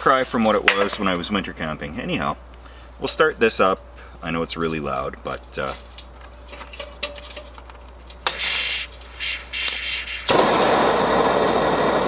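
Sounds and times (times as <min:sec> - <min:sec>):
gas hissing: 0:08.2 - 0:12.0
burner igniting with pop: 0:09.6 - 0:12.0
loud rushing flame: 0:10.3 - 0:12.0.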